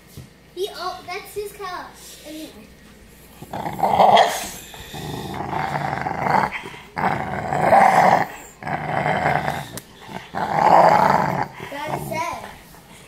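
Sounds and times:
puppy growling: 3.2s - 13.0s.

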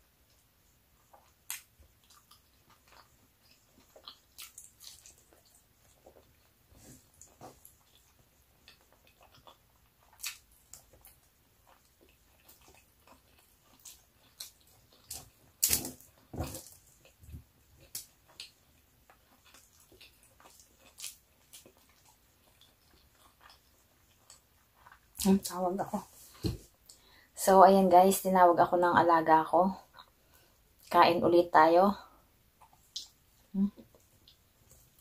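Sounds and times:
chewing and mouth smacks: 1.0s - 25.3s, 32.6s - 35.0s.

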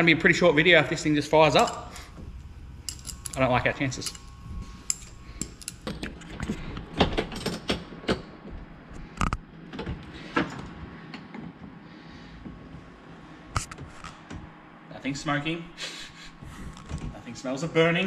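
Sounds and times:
small metal parts clicking and knocking: 2.8s - 3.4s, 4.0s - 6.5s.

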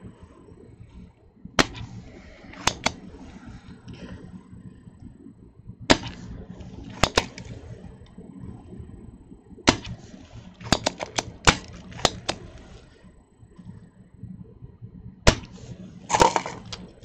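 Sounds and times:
solder sucker snapping: 1.6s - 3.2s, 5.9s - 7.8s, 9.7s - 12.9s, 15.3s - 17.0s.

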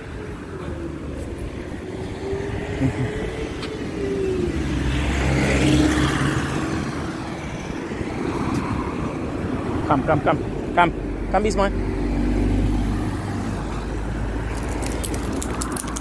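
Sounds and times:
car driving past: 0.4s - 10.2s.

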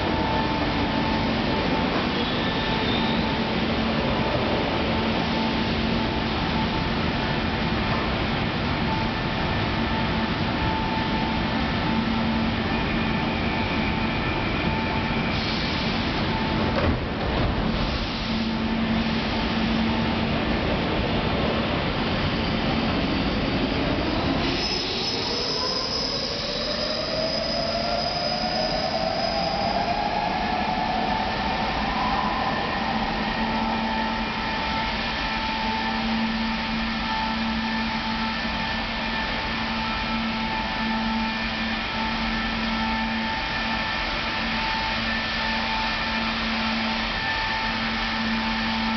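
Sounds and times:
train motor whine: 24.7s - 48.9s.

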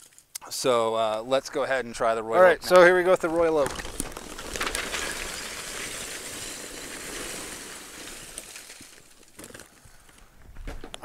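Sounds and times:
charcoal chunks clattering: 2.6s - 10.2s.

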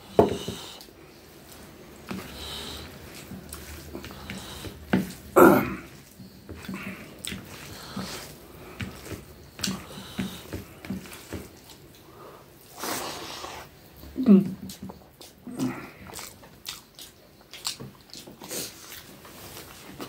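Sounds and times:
fingers squishing rice and curry: 0.8s - 12.1s
wet chewing and lip-smacking: 14.7s - 19.3s.

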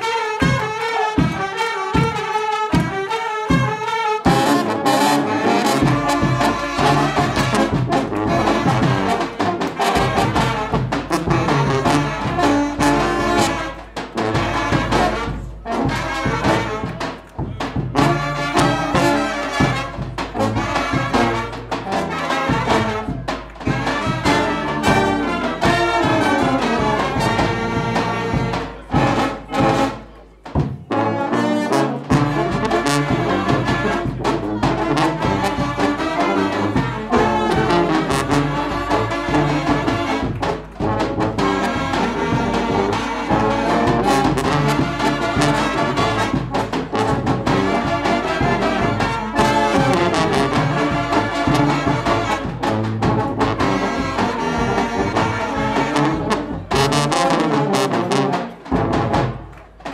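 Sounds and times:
brass band playing dance tune: 0.0s - 59.9s.

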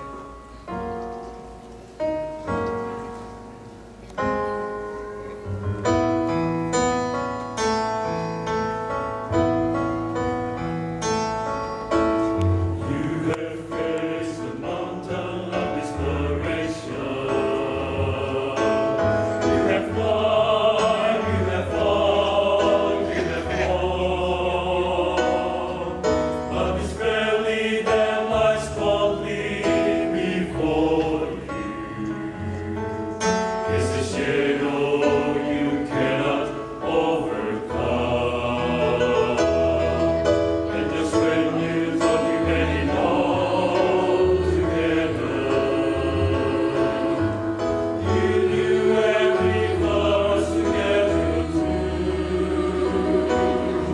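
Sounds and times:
mixed choir singing: 12.2s - 53.9s.

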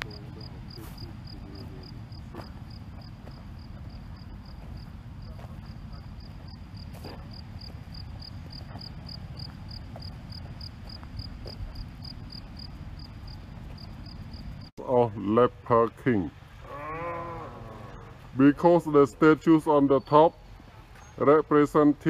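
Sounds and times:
insect chirping: 0.0s - 14.7s.

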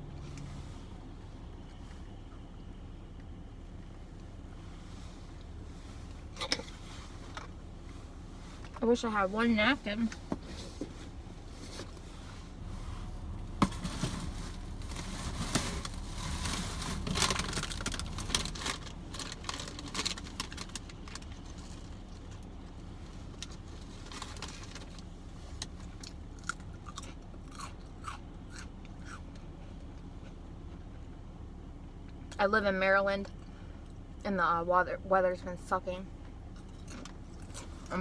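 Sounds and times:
chewing and biting sandwich: 26.0s - 29.9s.

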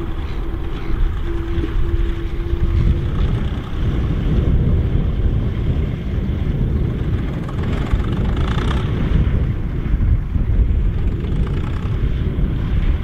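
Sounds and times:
diesel tractor engine under load: 0.0s - 13.0s.

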